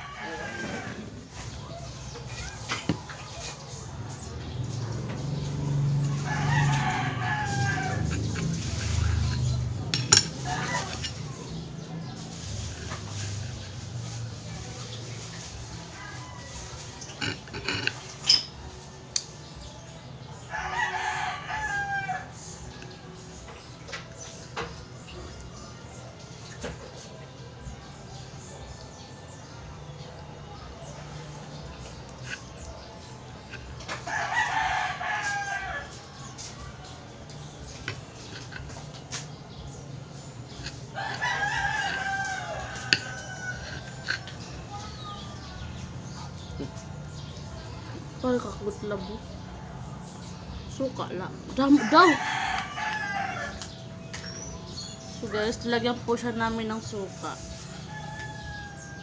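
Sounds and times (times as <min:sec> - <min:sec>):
rooster crowing: 0:00.0 - 0:01.2, 0:05.6 - 0:09.5, 0:15.9 - 0:17.3, 0:20.5 - 0:22.4, 0:34.0 - 0:36.0, 0:40.6 - 0:44.9, 0:51.7 - 0:53.7, 0:57.8 - 0:59.0
knife scraping clam shells: 0:07.4 - 0:15.0, 0:37.7 - 0:39.4, 0:40.3 - 0:46.6.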